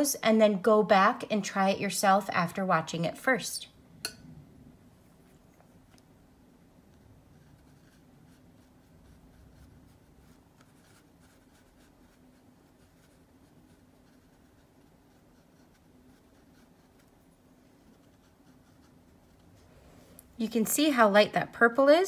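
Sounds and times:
low steady hum: 0.0 - 22.0
paintbrush dabbing on paper: 6.9 - 19.7.

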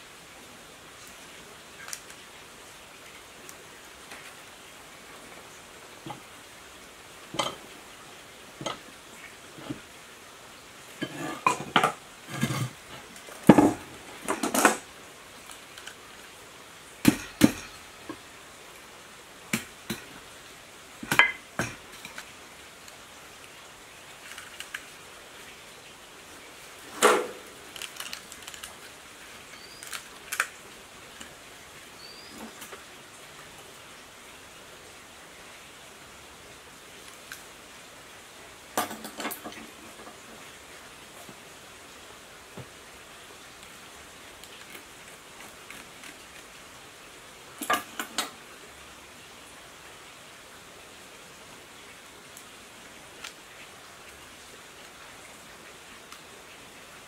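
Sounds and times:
tools and wire handled: 26.9 - 30.5.

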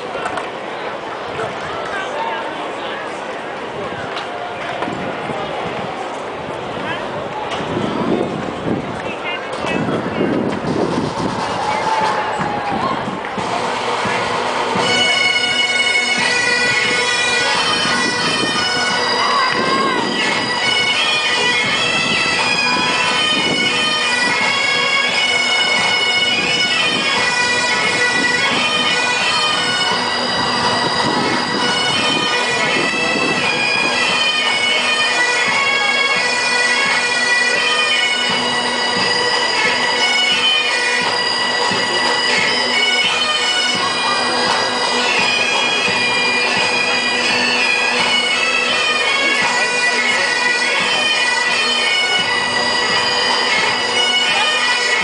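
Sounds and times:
bagpipe drones: 9.0 - 55.0
bagpipes playing a tune: 13.4 - 55.0.

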